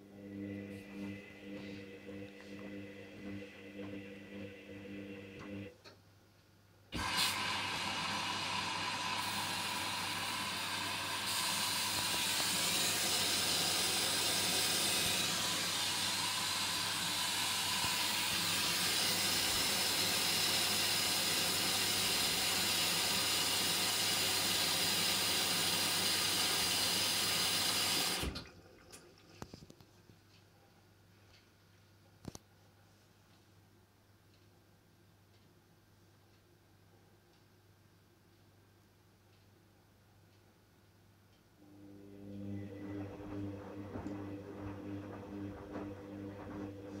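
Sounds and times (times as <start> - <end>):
low hum: 0.0 - 5.7, 41.6 - 47.0
water rushing into washing machine: 7.0 - 29.4, 42.2 - 47.0.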